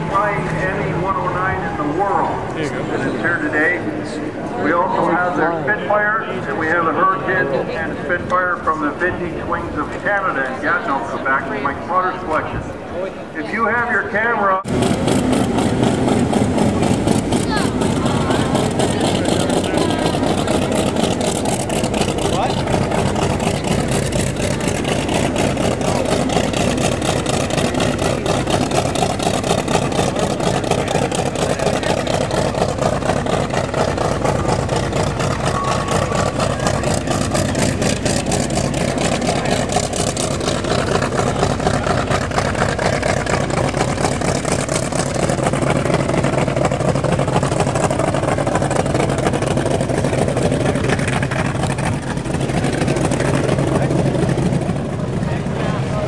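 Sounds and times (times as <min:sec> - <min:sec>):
piston aero engine idling: 0:14.6 - 0:56.0.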